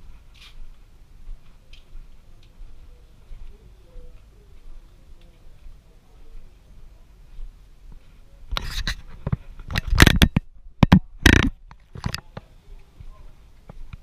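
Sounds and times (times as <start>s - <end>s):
camera handling bumps: 8.6s - 12.2s.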